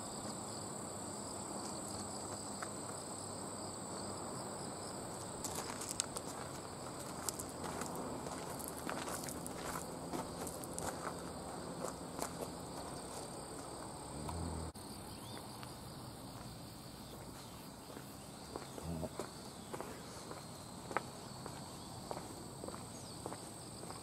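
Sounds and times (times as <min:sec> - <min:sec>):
insects trilling: 0:00.0 - 0:24.0
footsteps on the ground: 0:05.1 - 0:14.4, 0:16.3 - 0:24.0.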